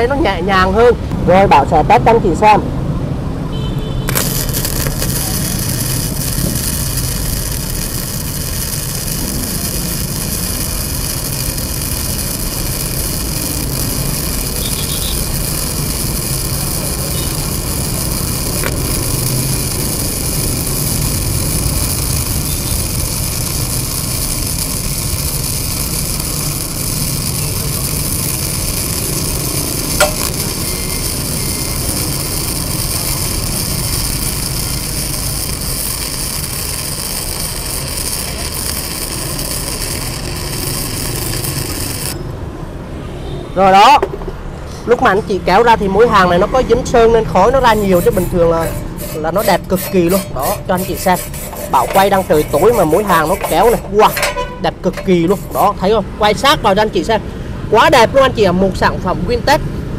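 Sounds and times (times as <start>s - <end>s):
welding arc crackling: 3.7s - 42.4s, 45.0s - 59.6s
sharp welding pop: 3.8s - 42.2s, 47.6s - 55.8s.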